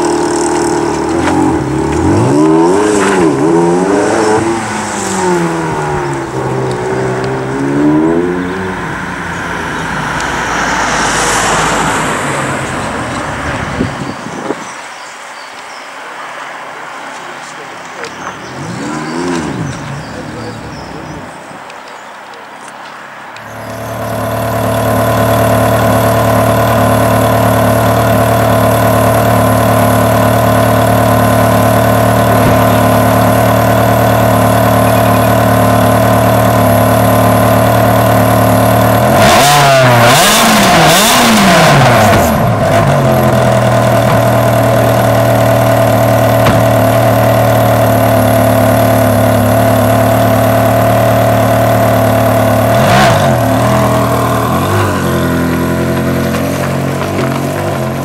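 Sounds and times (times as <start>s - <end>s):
engine revving: 0.0s - 13.8s, 18.4s - 21.3s, 23.4s - 58.0s
car engine idling: 0.0s - 14.2s, 17.2s - 21.7s, 22.6s - 58.0s.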